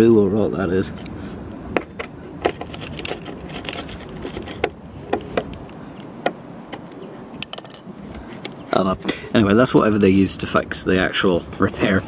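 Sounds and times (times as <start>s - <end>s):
metal scraping on rusty metal: 1.8s - 5.7s.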